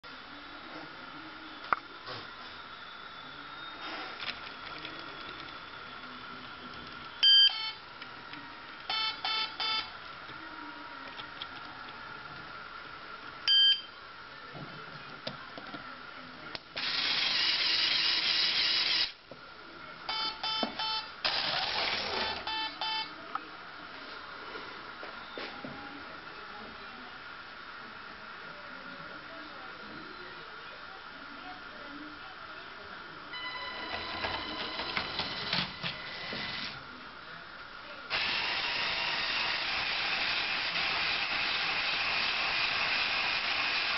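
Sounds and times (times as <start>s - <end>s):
electronic beeps: 7.2s - 7.8s, 8.9s - 9.9s, 33.3s - 36.3s
toy motor whirring: 16.8s - 19.2s, 21.3s - 22.4s, 38.1s - 43.9s.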